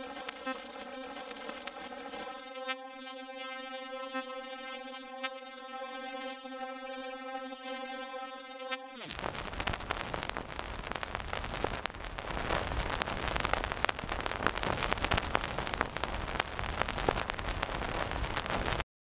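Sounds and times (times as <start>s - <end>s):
vinyl crackles and pops: 0.0s - 18.8s.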